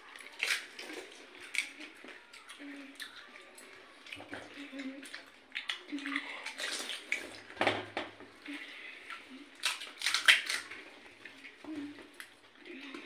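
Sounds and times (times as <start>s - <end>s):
crisp shells cracking: 9.6s - 10.7s
crunching while eating: 9.6s - 10.8s.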